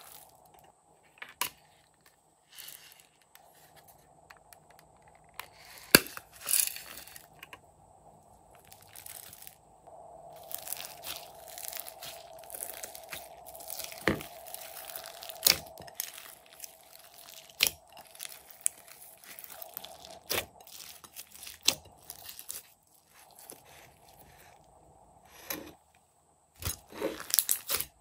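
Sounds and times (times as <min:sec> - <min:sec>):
slime crackling and crunching: 0:00.0 - 0:00.5, 0:08.5 - 0:09.6, 0:10.3 - 0:24.6, 0:26.6 - 0:28.0.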